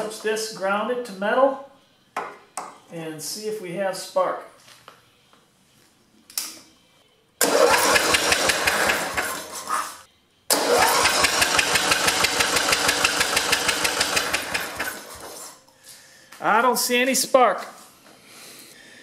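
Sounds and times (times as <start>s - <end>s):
electric starter cranking engine: 7.4s - 9.7s, 10.5s - 15.5s.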